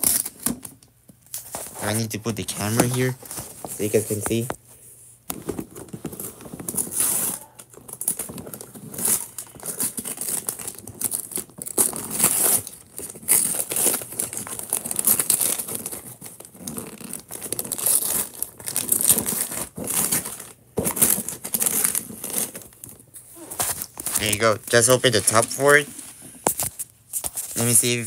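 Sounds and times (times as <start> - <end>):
wrapping paper tearing: 6.6 - 26.7.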